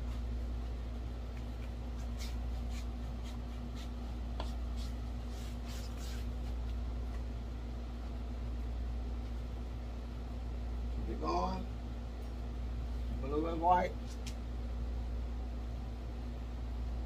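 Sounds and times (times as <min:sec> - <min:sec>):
low room hum: 0:00.0 - 0:17.0
paintbrush scrubbing canvas: 0:01.3 - 0:06.7.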